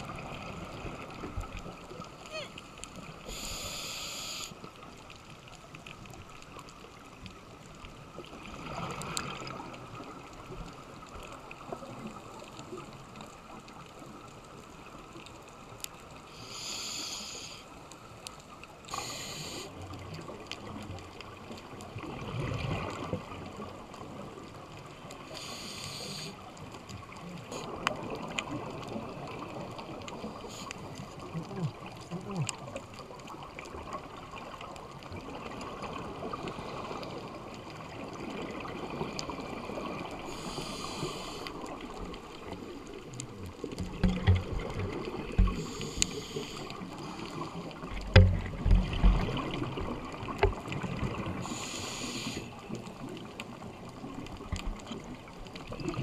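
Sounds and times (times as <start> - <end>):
exhaled bubbles gurgling: 0.0 - 4.4, 8.0 - 14.3, 18.9 - 56.0
low steady water noise: 0.0 - 56.0
regulator hissing inhalations: 3.3 - 4.6, 16.3 - 17.7, 18.9 - 19.7, 25.3 - 26.4, 40.3 - 41.5, 45.6 - 46.7, 51.5 - 52.6.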